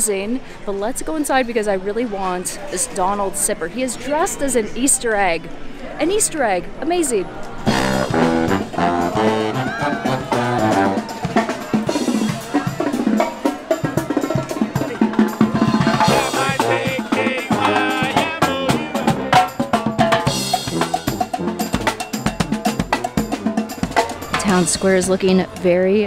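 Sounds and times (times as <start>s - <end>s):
brass and saxophones playing tune: 7.6s - 25.4s
marching drums beat: 7.7s - 26.0s.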